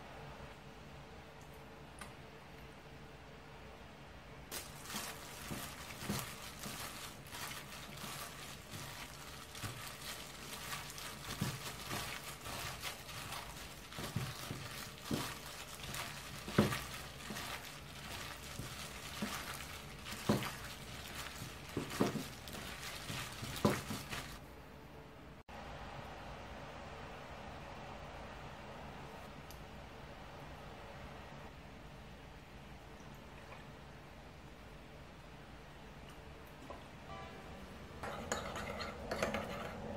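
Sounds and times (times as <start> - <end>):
plastic glove crinkling: 4.5 - 24.4
wet squishing of batter: 4.5 - 24.4.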